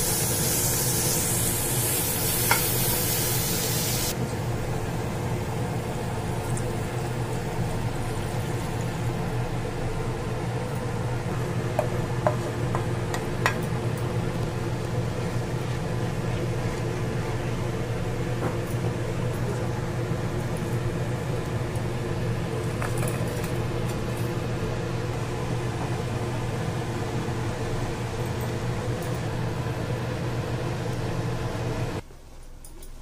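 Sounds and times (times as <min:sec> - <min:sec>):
electric fan motor humming: 0:00.0 - 0:33.0.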